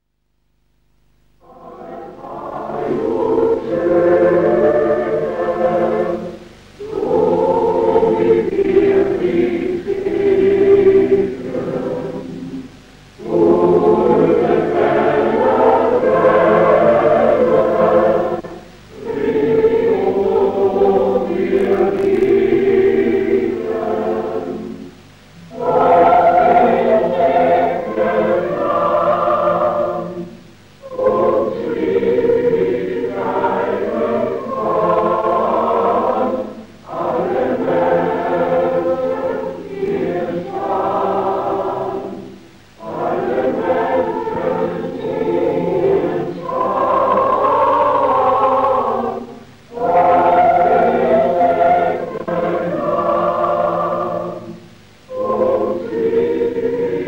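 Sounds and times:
choir singing: 1.4 - 57.0.

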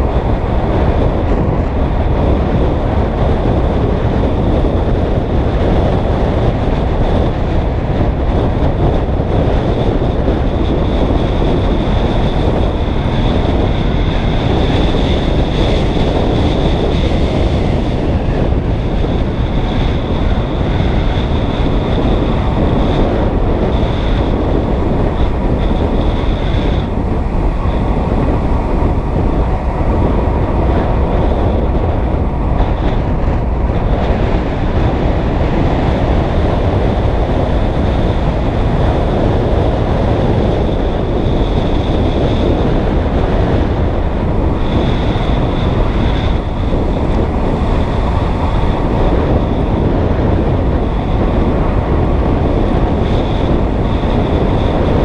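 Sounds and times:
road rumble: 0.0 - 55.0
wind roaring over microphone: 0.0 - 55.0.

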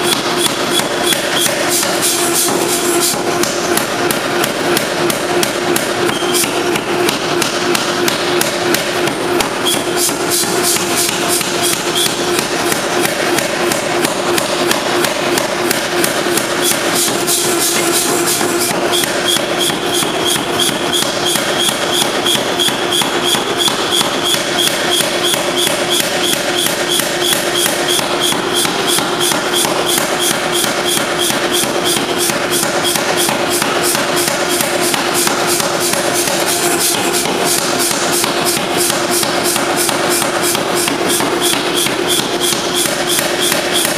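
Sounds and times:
power hammer striking hot metal: 0.0 - 43.9
steady machine hum: 0.0 - 43.9.

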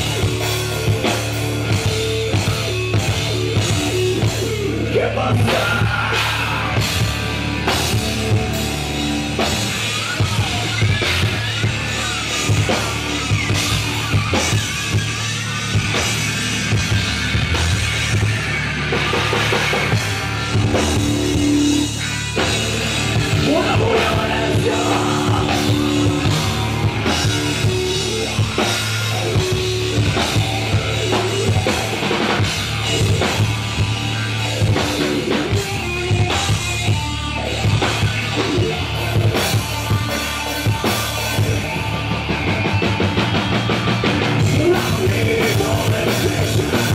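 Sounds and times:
bass guitar: 0.0 - 46.9
drum kit: 0.0 - 46.9
electric guitar: 0.0 - 46.9.

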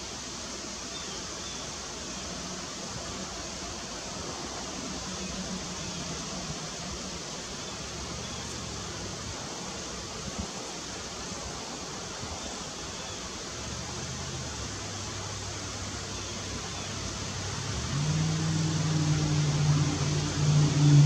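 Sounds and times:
steady outdoor hiss: 0.0 - 21.0
low engine hum: 13.6 - 21.0.

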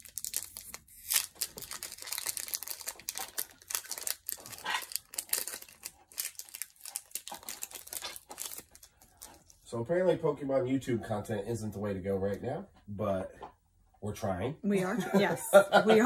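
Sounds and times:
foil wrapper crinkling and tearing: 0.0 - 9.4.

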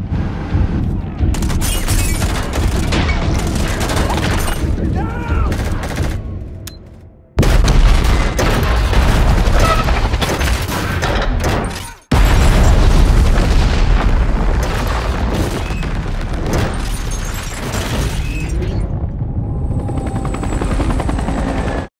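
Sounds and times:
huge explosions: 0.0 - 6.6, 7.4 - 21.0
blast and debris tail: 7.4 - 19.4.

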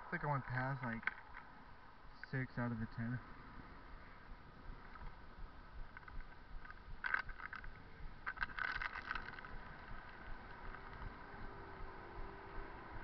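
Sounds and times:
bicycle rattling and clicking: 1.0 - 1.5, 4.8 - 13.0.

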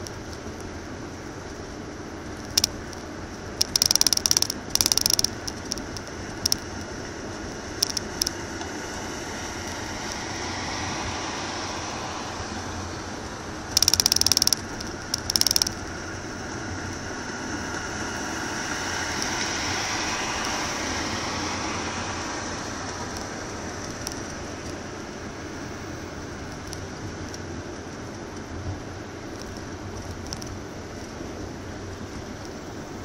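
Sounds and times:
car road and tyre noise: 0.0 - 33.0
loud rattling bursts: 3.6 - 6.6, 13.8 - 15.8.

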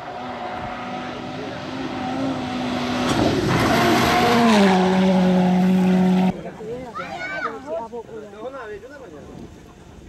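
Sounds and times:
rally car engine at high revs: 0.0 - 6.4.

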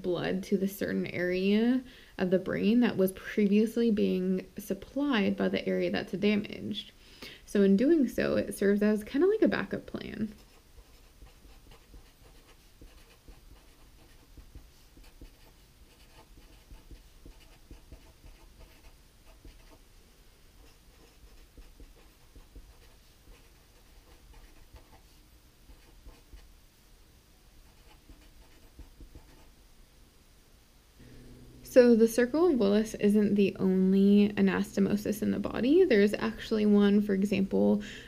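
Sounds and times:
marker scratching on paper: 10.2 - 19.8, 20.6 - 26.5, 27.6 - 29.5.

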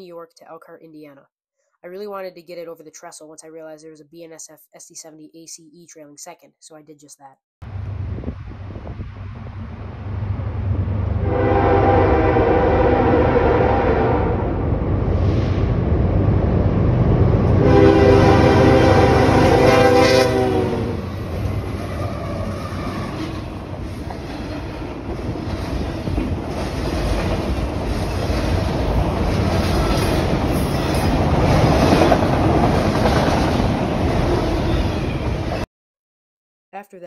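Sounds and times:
train cars rumbling over trestle: 7.6 - 35.6
locomotive horn: 11.2 - 14.6, 17.5 - 21.2.

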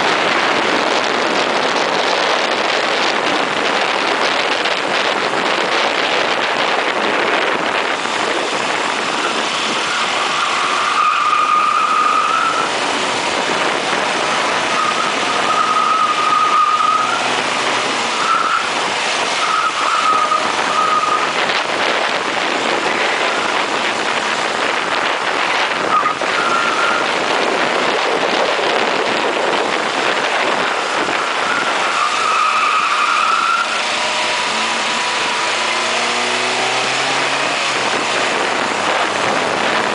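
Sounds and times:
car engine running at speed: 0.0 - 39.9
wind and road noise: 0.0 - 39.9
high-pitched tyre squeals: 8.5 - 21.5, 25.5 - 27.1, 30.8 - 38.2.

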